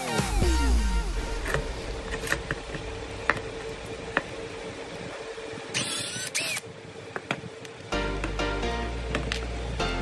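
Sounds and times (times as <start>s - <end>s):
faint steady hum: 0.2s - 10.0s
electric drill drilling metal: 1.3s - 6.7s.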